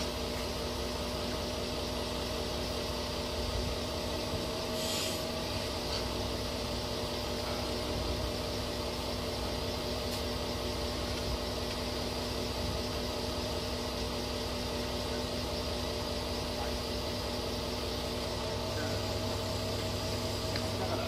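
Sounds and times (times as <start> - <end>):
heavy machinery engine idling: 0.0 - 21.0
brief hiss: 4.8 - 5.2.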